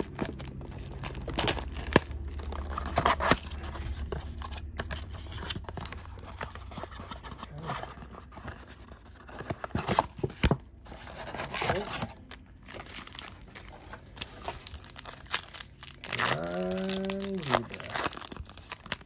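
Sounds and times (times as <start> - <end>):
foil pack crinkle: 0.0 - 6.2, 11.4 - 19.0
cards clicking and scraping: 0.0 - 12.3
low steady hum: 0.0 - 19.0.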